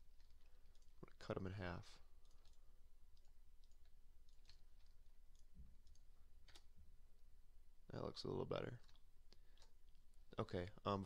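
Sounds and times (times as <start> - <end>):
computer mouse clicks: 0.1 - 1.2, 2.2 - 6.8, 8.7 - 10.0.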